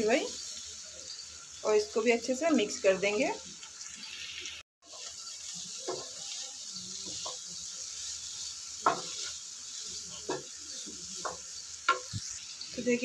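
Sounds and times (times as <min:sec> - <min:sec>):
vegetables sizzling in a frying pan: 0:00.0 - 0:13.0
spatula scraping a pan: 0:04.8 - 0:12.6.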